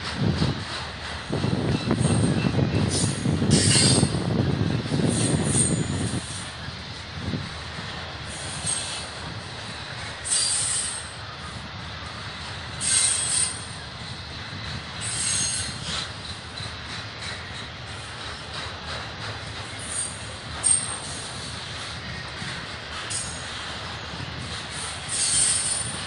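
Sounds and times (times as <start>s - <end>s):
freight train wheels rumbling: 0.0s - 26.0s
high-pitched wheel squeals: 1.7s - 4.2s, 5.0s - 6.5s, 8.3s - 9.1s, 10.2s - 11.2s, 12.8s - 13.8s, 14.6s - 16.7s, 25.1s - 26.0s.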